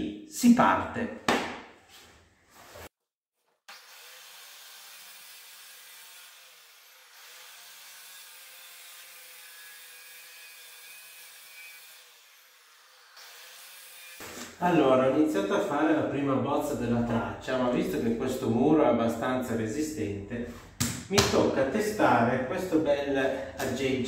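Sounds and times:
masonry cutter grinding wall: 3.7 - 14.6.

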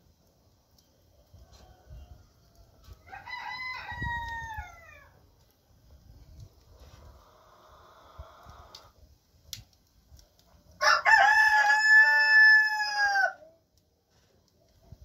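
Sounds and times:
rooster crowing: 1.4 - 5.2, 10.8 - 13.5.

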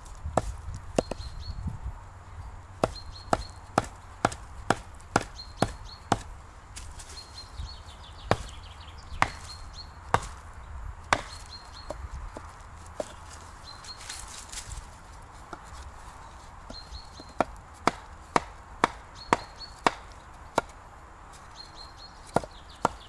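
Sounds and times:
hand tool chopping wood: 0.0 - 1.3, 2.8 - 6.9, 8.3 - 8.6, 9.2 - 10.4, 11.1 - 13.3, 16.6 - 20.8, 22.2 - 23.0.

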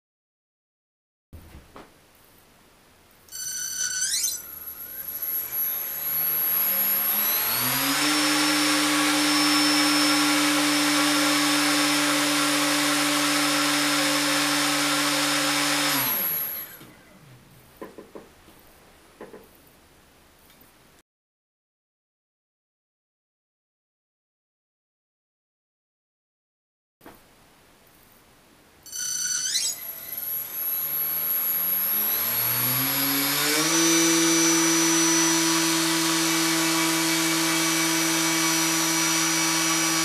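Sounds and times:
small electric motor whining: 3.3 - 17.3, 28.9 - 40.0.

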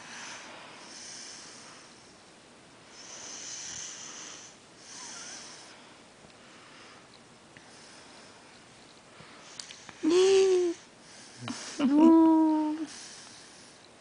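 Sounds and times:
soft airy breathing: 0.0 - 11.9, 12.6 - 14.0.

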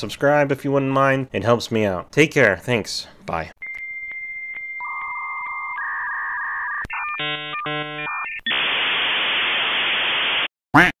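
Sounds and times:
modem chirping tones: 3.6 - 10.5
modem warbling tones: 4.8 - 9.0
modem data hiss: 6.8 - 10.5.

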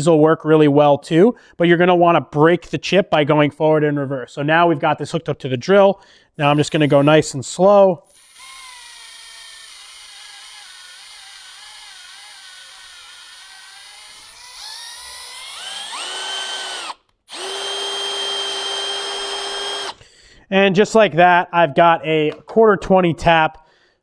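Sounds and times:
drill motor whine: 8.0 - 20.0.

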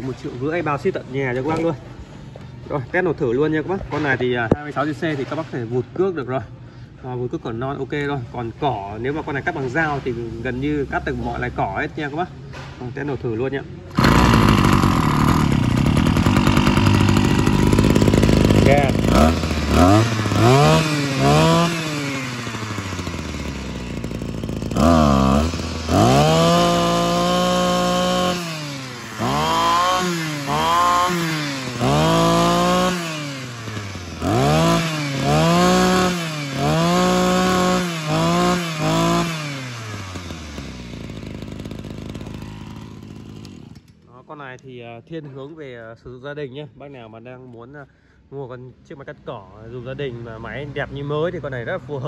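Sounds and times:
brush cutter engine revving: 13.9 - 44.0.

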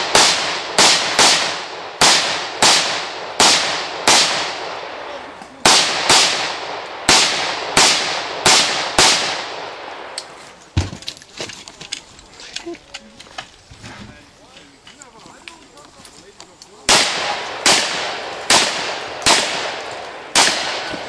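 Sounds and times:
rapid gunshots with echo: 0.0 - 10.2, 16.9 - 21.0.

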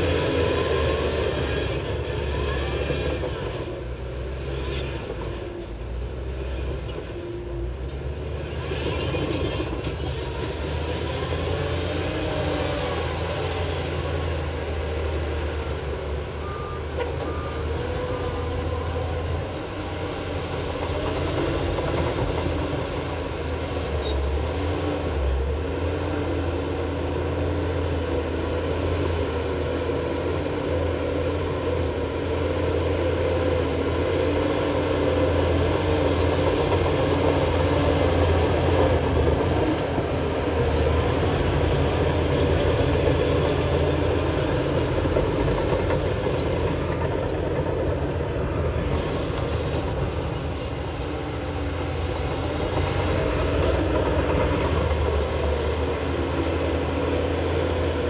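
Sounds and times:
bulldozer diesel engine running: 0.0 - 58.0
reversing alarm beeping: 16.3 - 18.4.

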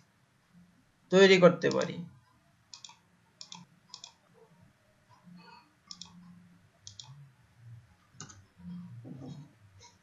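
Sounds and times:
computer mouse clicking: 2.7 - 4.2, 5.1 - 7.2, 8.2 - 8.4.

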